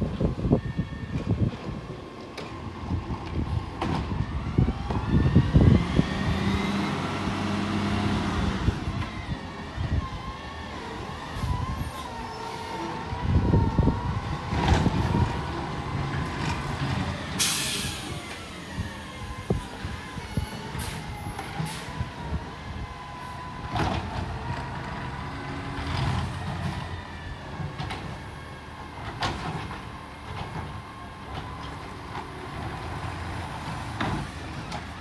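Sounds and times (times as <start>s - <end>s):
garbage truck engine whining: 0.0s - 35.0s
air brake hiss: 17.4s - 18.2s.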